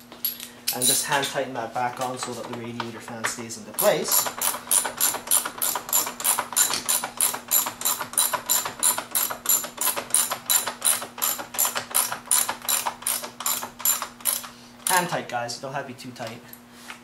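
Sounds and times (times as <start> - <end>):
hand ratchet clicking: 3.8 - 15.0.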